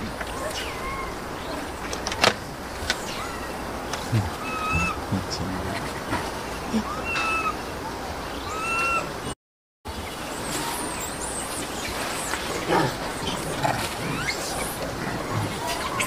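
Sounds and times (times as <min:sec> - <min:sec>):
steady hiss: 0:01.1 - 0:06.7
baby monkey crying: 0:04.2 - 0:05.0, 0:06.8 - 0:07.6, 0:08.4 - 0:09.1.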